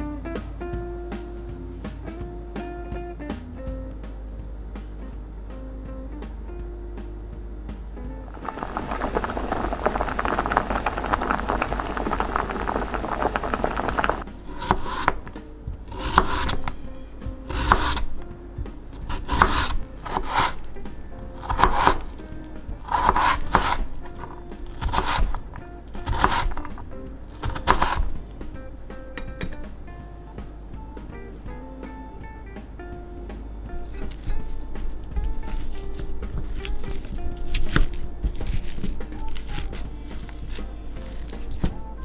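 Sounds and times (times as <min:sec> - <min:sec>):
knife slicing potato on cutting board: 0:14.5 - 0:16.8, 0:17.4 - 0:18.2, 0:19.0 - 0:20.8, 0:21.4 - 0:22.2, 0:22.8 - 0:25.4, 0:26.0 - 0:28.2, 0:33.9 - 0:41.8.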